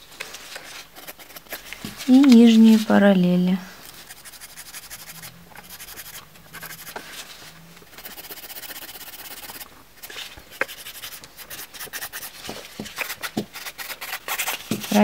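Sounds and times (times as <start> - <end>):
nail file rasping: 1.0 - 1.6, 4.1 - 7.0, 7.9 - 9.7, 13.0 - 15.0.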